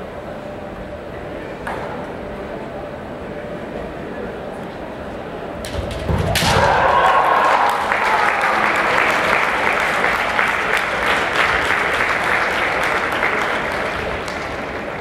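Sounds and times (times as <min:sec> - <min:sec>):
spectators clapping: 0:06.4 - 0:15.0.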